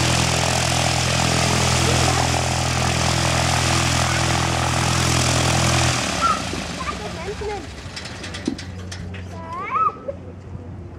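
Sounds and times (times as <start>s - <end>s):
airplane engine droning: 0.0s - 9.4s.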